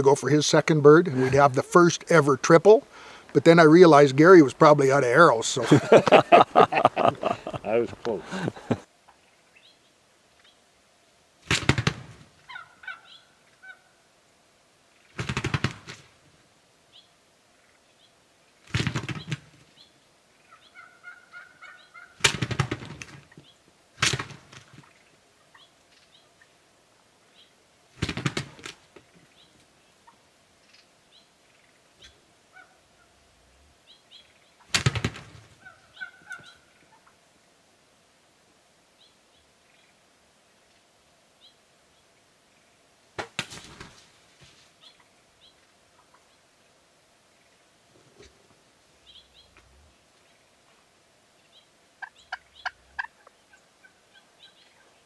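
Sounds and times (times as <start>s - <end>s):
turkeys gobbling: 3.0s - 9.3s, 12.4s - 13.9s, 20.4s - 22.4s, 35.1s - 37.2s, 45.9s - 46.4s, 52.0s - 55.0s
faint short turkey calls: 12.5s - 14.0s, 19.8s - 22.2s, 29.3s - 33.2s, 35.5s - 37.2s.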